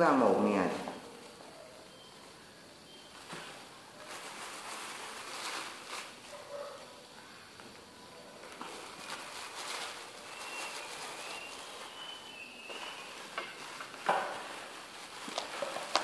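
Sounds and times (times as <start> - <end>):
gloved hands rustling: 8.4 - 16.0.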